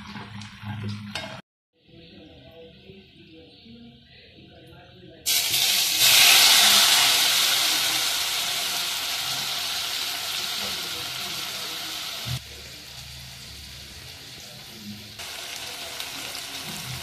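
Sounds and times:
tomatoes sizzling in hot oil: 5.3s - 17.0s.

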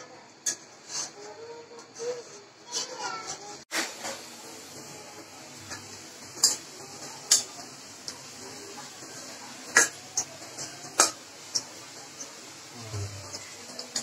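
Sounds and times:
metal spatula clinking on pan: 6.4s - 6.7s, 7.3s - 7.6s, 9.7s - 12.4s.

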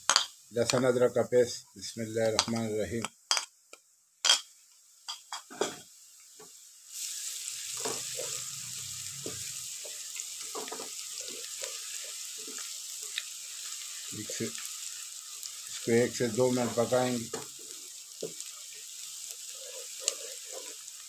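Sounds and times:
onions sizzling in hot fat: 0.0s - 21.0s
wooden spatula scraping: 19.4s - 20.8s.

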